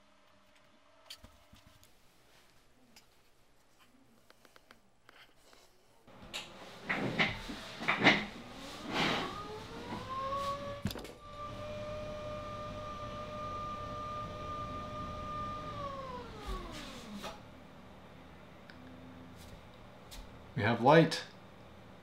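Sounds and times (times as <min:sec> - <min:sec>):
desk lift motor whining: 0:06.1 - 0:19.3
knocks and rustles: 0:06.2 - 0:11.2.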